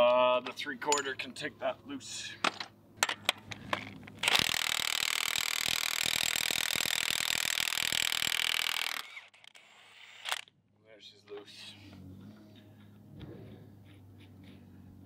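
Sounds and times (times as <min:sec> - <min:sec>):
bolt cracking loose: 0:02.4 - 0:05.4.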